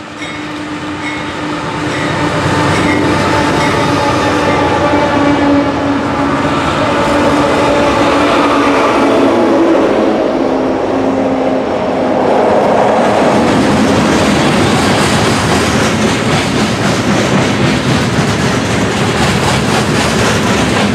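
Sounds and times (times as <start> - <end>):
diesel locomotive engines droning: 0.0 - 20.9
freight cars clickety-clack: 12.5 - 20.9.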